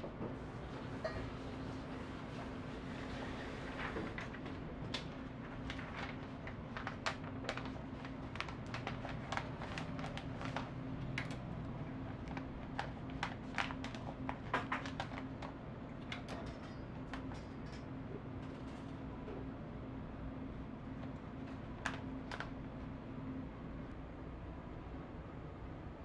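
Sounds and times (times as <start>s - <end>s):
steady low hum: 0.0s - 26.0s
paper crinkling and rustling: 2.3s - 17.5s.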